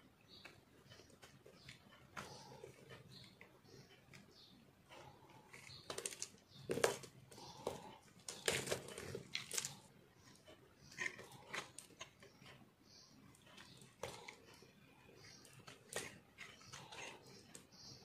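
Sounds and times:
knife scraping soap: 0.4 - 18.0
crumbly soap crunching: 5.5 - 12.6, 15.2 - 17.7.

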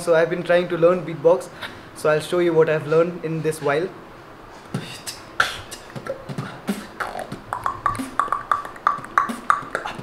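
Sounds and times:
vocal beatboxing: 4.7 - 10.0.

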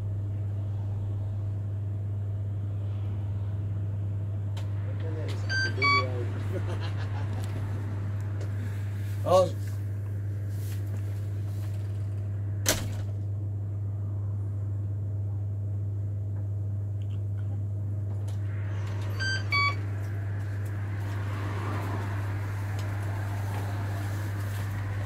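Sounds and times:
steady low hum: 0.0 - 25.0
short electronic beeps: 5.4 - 6.2, 19.2 - 19.8.

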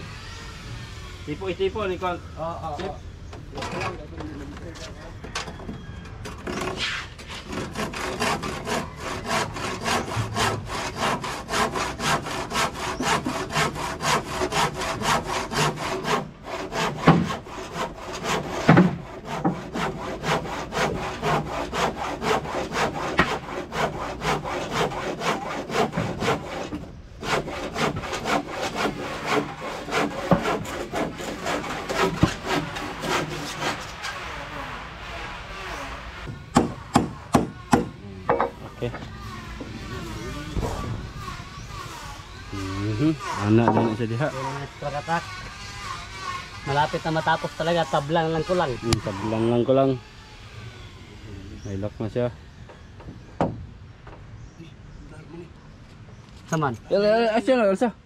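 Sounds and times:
hand saw cutting wood: 6.4 - 50.2.

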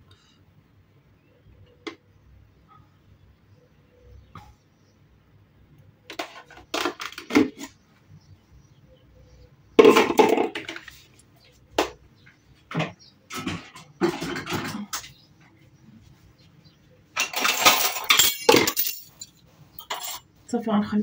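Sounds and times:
dishes and utensils clattering: 6.1 - 7.8, 9.8 - 11.0, 12.7 - 15.2, 17.1 - 20.3.

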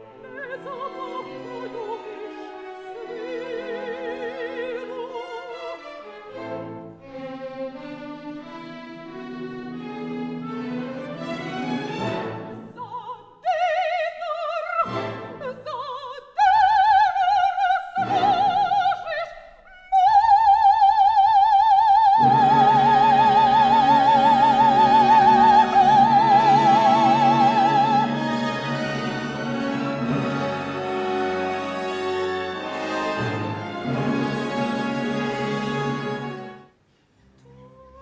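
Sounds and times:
orchestral accompaniment: 0.0 - 12.9, 14.7 - 15.9, 18.0 - 19.2, 22.1 - 38.0
operatic high voice singing: 0.1 - 5.6, 12.6 - 28.2.

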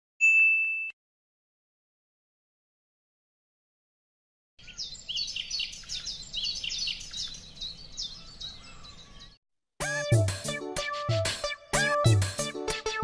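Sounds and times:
birds chirping: 4.6 - 9.4.

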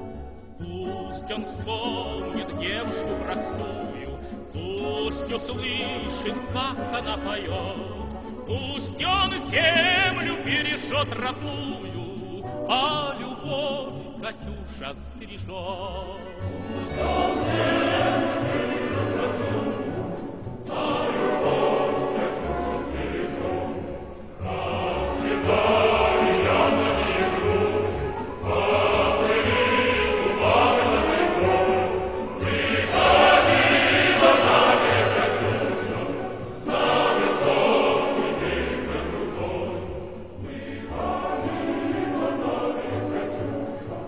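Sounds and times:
choir singing sustained tones: 16.6 - 44.0.

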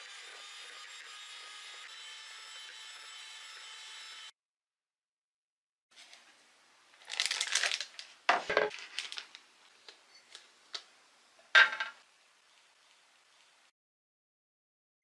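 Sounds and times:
plastic bag crinkling: 7.0 - 9.9.

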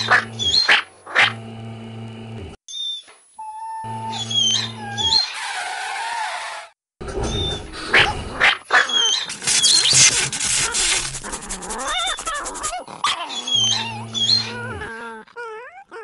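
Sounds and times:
dog yelping and whining: 3.5 - 5.4, 7.3 - 16.0.

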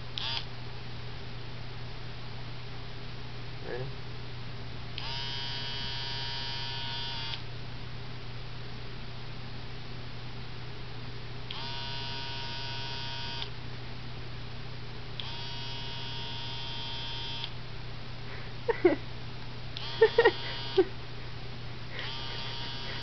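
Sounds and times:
steady low hum: 0.0 - 23.0
electric razor buzzing: 0.2 - 0.4, 5.0 - 7.4, 11.5 - 13.5, 15.2 - 17.5, 19.8 - 20.9, 21.9 - 23.0.

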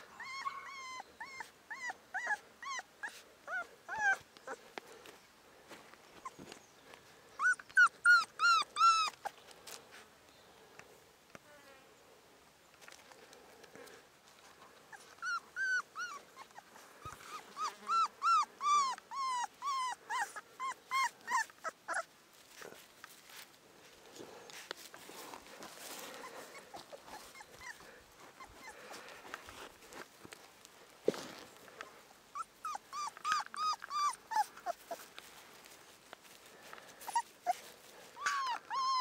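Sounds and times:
puppy whining: 0.0 - 5.1, 6.1 - 6.6, 7.3 - 9.4, 14.7 - 22.9, 25.2 - 29.8, 32.3 - 35.8, 36.5 - 39.0.

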